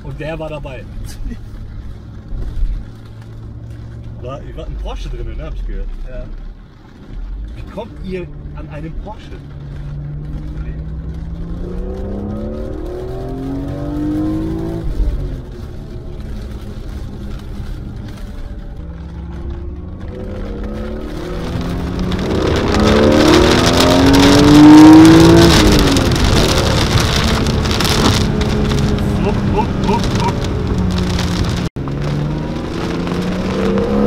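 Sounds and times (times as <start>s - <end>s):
car engine accelerating hard: 7.1s - 34.0s.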